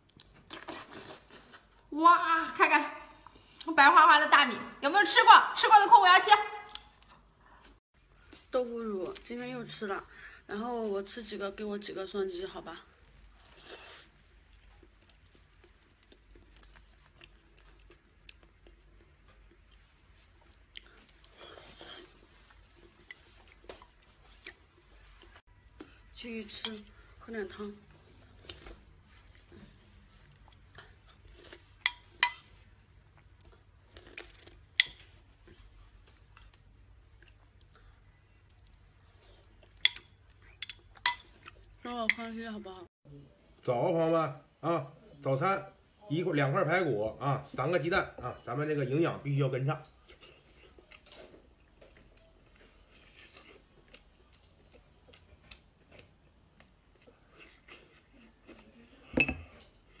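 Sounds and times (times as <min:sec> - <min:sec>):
person chewing meat: 0:13.5 - 0:26.0.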